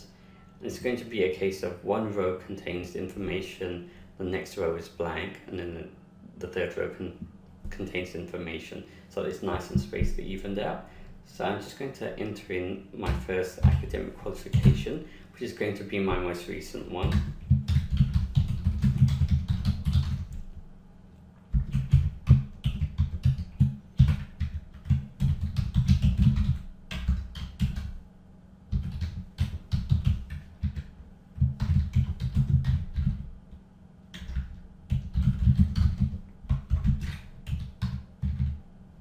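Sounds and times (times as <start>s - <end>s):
computer keyboard typing: 13.6s - 14.9s, 17.0s - 20.4s, 21.5s - 27.9s, 28.7s - 33.3s, 34.1s - 38.6s.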